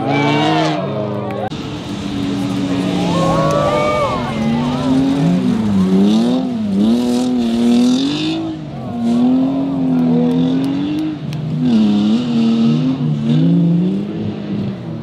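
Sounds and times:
rally car engines revving: 0:00.0 - 0:15.0
dirt spraying from tyres: 0:01.5 - 0:09.6.

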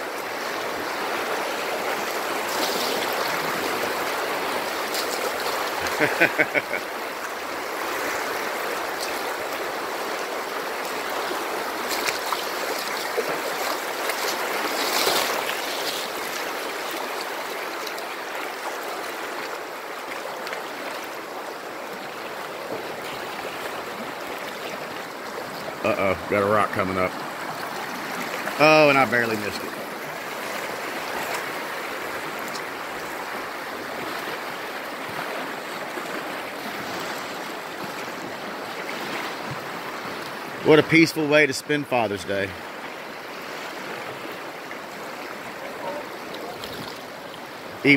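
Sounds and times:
river water flowing over rapids: 0:00.0 - 0:47.9
person's voice: 0:25.8 - 0:27.1, 0:28.6 - 0:29.8, 0:40.6 - 0:42.6.

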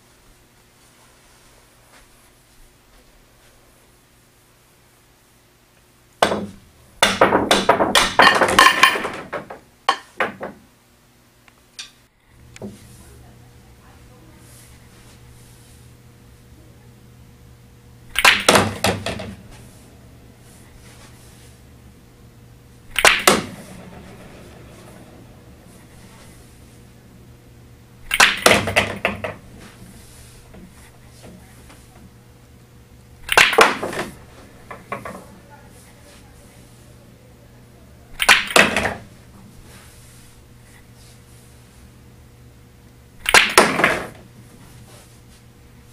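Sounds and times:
pool cue striking ball: 0:06.2 - 0:10.6, 0:18.1 - 0:32.2, 0:33.2 - 0:35.4, 0:38.1 - 0:40.3, 0:43.2 - 0:44.3
billiard balls clacking: 0:06.2 - 0:10.7, 0:18.0 - 0:32.2, 0:33.2 - 0:36.8, 0:38.1 - 0:40.3, 0:43.2 - 0:44.4.

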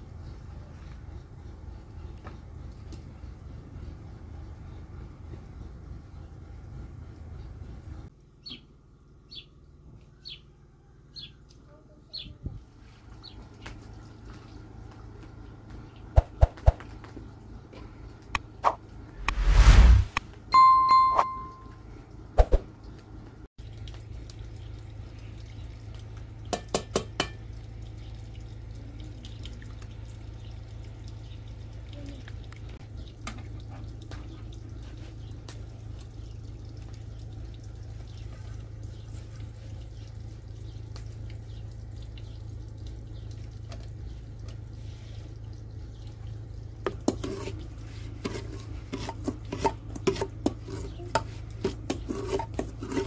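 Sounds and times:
steady low rumble: 0:19.0 - 0:20.2
liquid pouring and dripping: 0:23.6 - 0:47.8.

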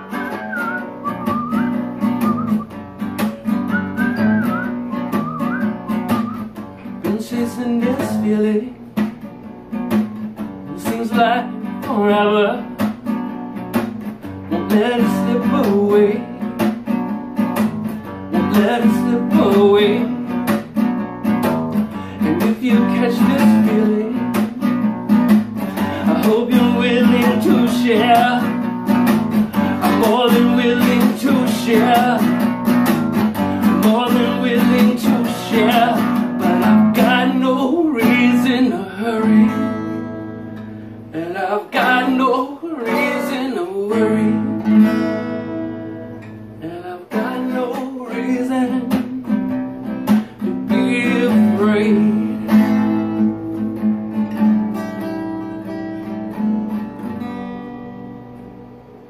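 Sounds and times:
acoustic guitar strumming: 0:00.0 - 0:59.0.

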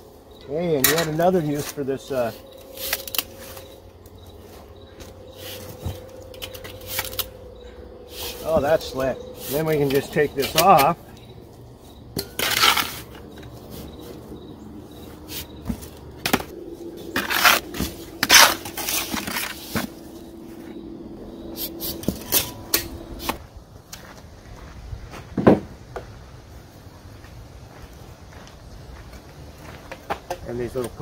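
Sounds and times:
scoop scraping dirt and stones: 0:00.7 - 0:03.8, 0:08.1 - 0:11.1, 0:12.2 - 0:14.2, 0:14.9 - 0:20.6.

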